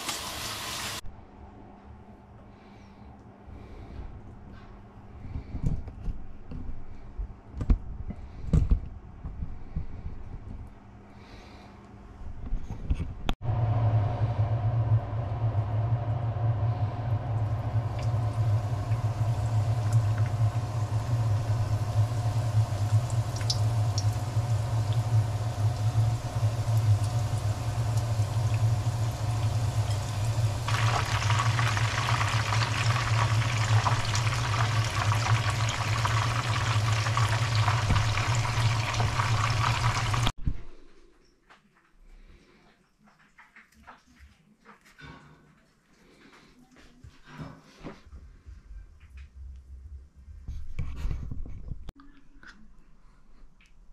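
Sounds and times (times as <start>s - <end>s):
oil sizzling and crackling: 0.0s - 1.0s, 17.0s - 40.3s
low hum: 12.3s - 41.1s.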